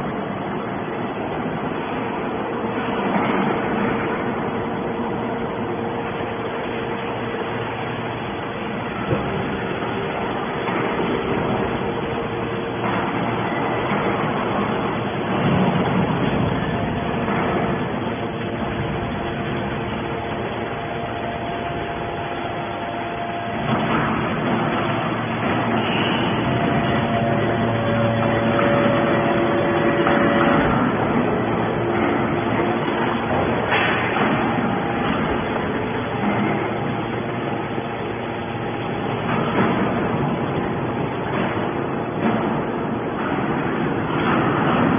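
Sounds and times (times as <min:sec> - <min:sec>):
baler machine hum: 0:00.0 - 0:44.9.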